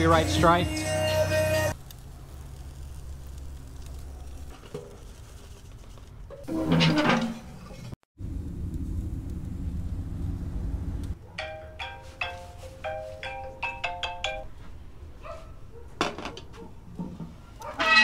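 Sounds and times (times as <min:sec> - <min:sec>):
low rumble: 0:08.2 - 0:11.2.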